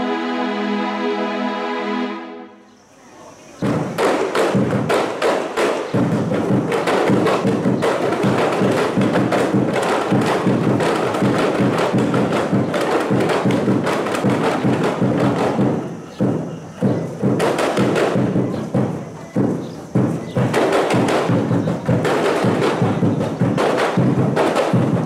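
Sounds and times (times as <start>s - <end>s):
hand-struck frame drums: 3.6s - 25.0s.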